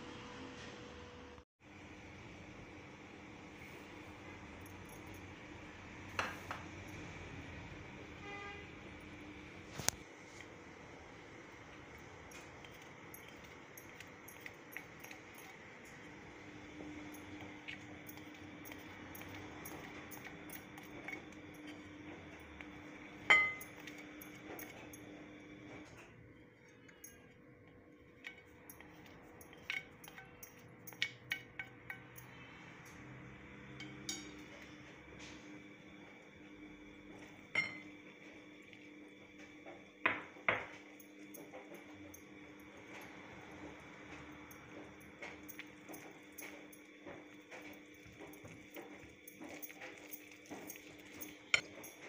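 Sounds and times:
utensils clinking on glass bowl: 11.7 - 27.4, 28.1 - 33.0, 33.8 - 35.4, 37.1 - 38.8, 39.6 - 52.0.

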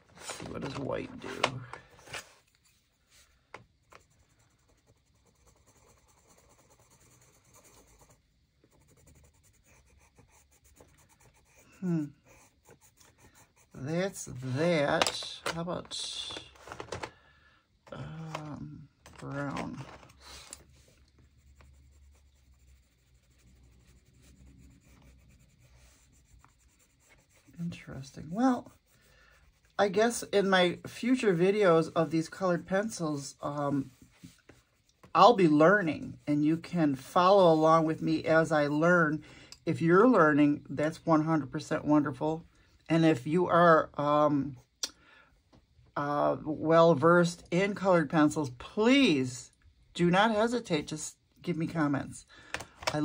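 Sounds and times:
pencil scratching on paper: 2.4 - 14.8, 19.3 - 39.0.

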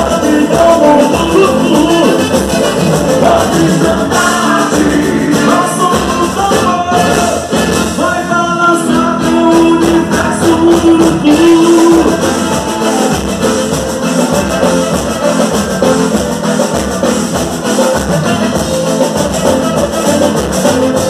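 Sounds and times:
person singing over a band: 0.0 - 16.2
driving percussion: 0.0 - 21.0.

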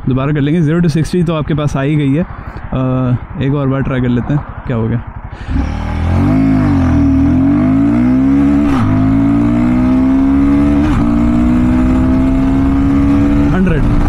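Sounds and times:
motorcycle engine revving: 4.4 - 14.0.

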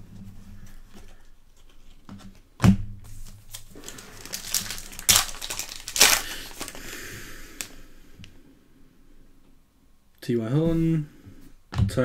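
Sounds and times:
foil wrapper tearing and crinkling: 3.3 - 7.0.

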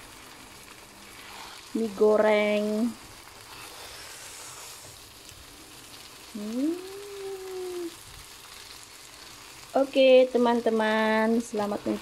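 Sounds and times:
noodles sizzling in a wok: 0.0 - 12.0
person humming: 6.3 - 8.0.

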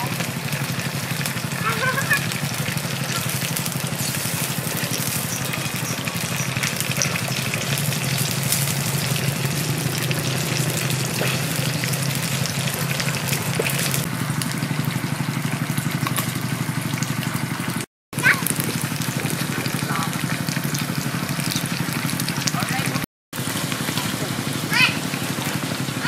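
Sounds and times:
fish sizzling in hot oil: 0.0 - 26.0
low hum: 3.1 - 17.0.

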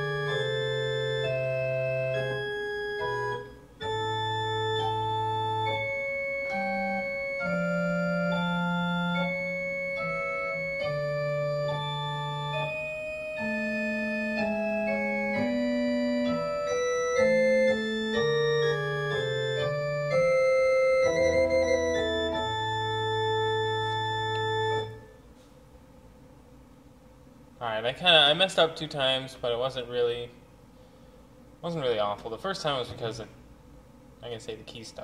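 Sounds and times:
organ playing chords: 0.0 - 25.3.

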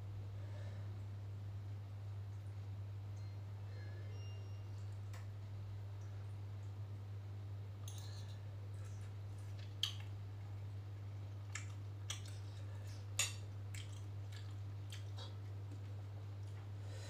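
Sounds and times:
soft chewing: 7.9 - 17.0.

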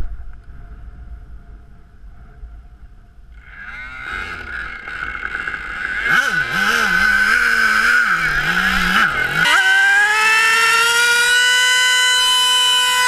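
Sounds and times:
wind rumble on microphone: 0.0 - 5.0
model aircraft engine whine: 3.3 - 13.0.

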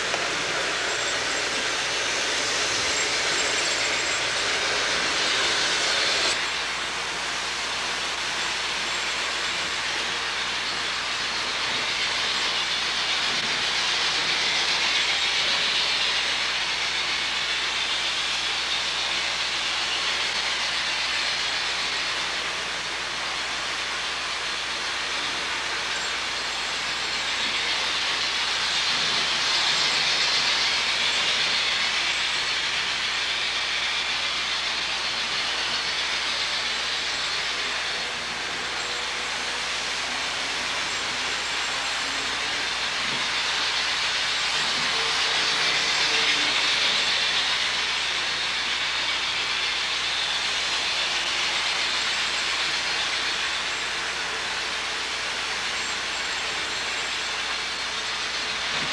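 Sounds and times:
model trains running on track: 0.0 - 58.9.

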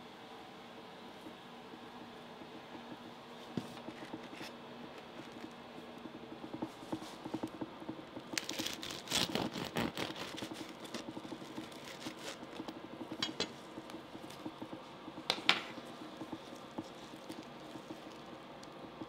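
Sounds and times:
bread knife sawing crusty roll: 8.4 - 12.5.

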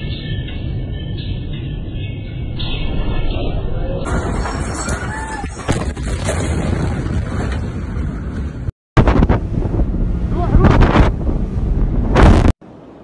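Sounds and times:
loud rumbling: 2.4 - 12.6
wind buffeting microphone: 9.0 - 12.6
explosion thump: 10.6 - 12.6.

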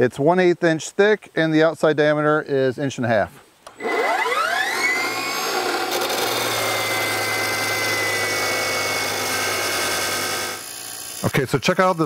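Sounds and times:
chop saw whining: 3.7 - 12.0
saw grinding through steel: 3.8 - 12.0.

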